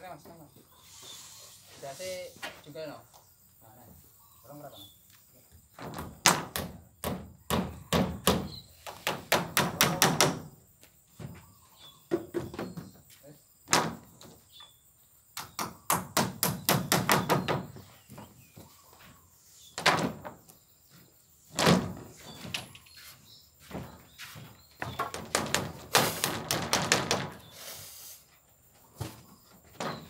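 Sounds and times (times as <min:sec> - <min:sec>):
hammering on wood: 0:05.8 - 0:10.5, 0:15.4 - 0:17.8, 0:24.8 - 0:27.4.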